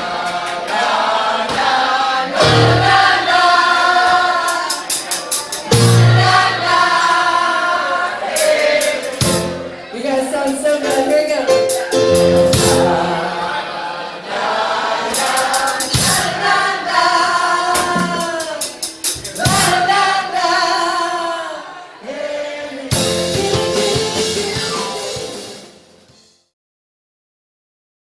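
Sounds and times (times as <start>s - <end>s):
keyboard: 2.3s - 13.6s, 22.8s - 26.3s
drum kit with cymbal crashes: 2.4s - 7.4s, 8.2s - 9.8s, 10.5s - 13.1s, 15.1s - 17.0s, 17.7s - 20.2s, 22.9s - 26.5s
woman singing: 16.4s - 18.8s, 23.0s - 25.4s.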